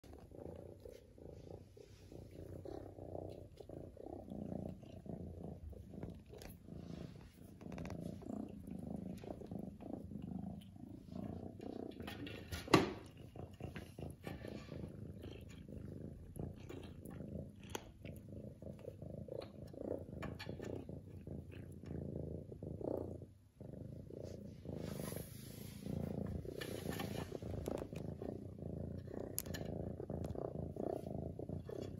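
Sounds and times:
cat purring loudly: 0.0 - 31.9
faint small clicks: 29.2 - 30.4.

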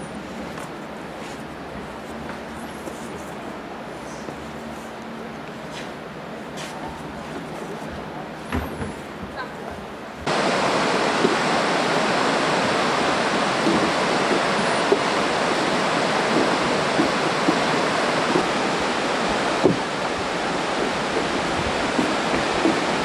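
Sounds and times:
river rushing over rapids: 10.2 - 23.0.

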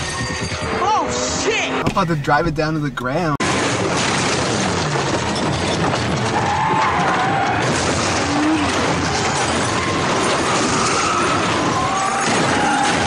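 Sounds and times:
heavy crash rumble: 3.4 - 13.0.

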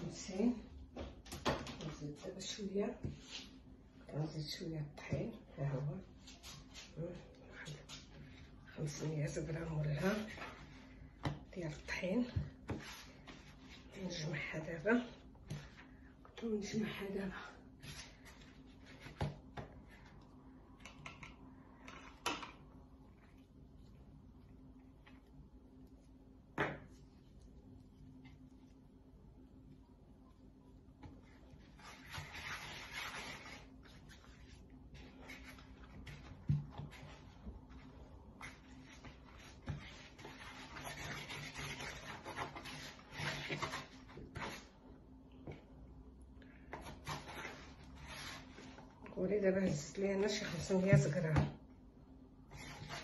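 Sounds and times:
hands kneading dough: 4.9 - 45.9
dough scraping against bowl: 31.5 - 37.8, 38.4 - 44.7.

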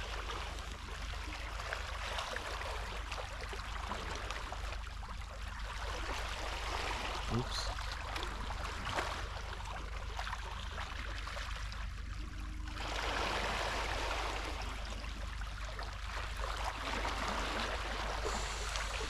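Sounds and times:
seawater rushing: 16.7 - 19.0.

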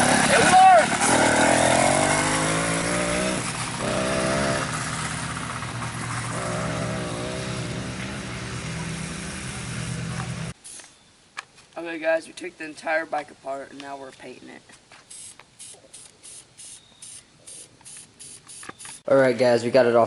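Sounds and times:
two-stroke bicycle engine running: 0.0 - 10.5.

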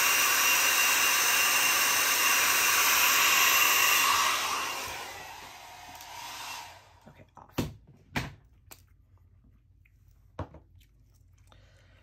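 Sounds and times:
hair dryer blowing: 0.0 - 7.0.

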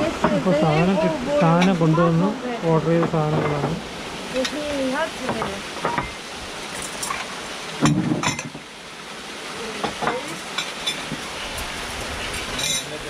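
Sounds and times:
dishes and cutlery clinking: 0.2 - 2.2, 2.9 - 3.8, 6.8 - 8.6, 12.2 - 13.0
knock on table: 5.2 - 6.1.

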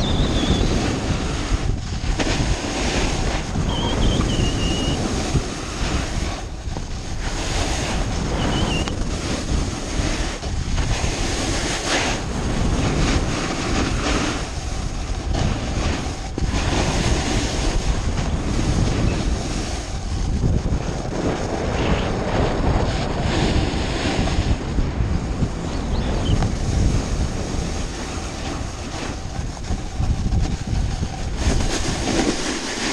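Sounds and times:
snowboard scraping over snow: 0.0 - 32.9
wind buffeting microphone: 0.0 - 32.9.

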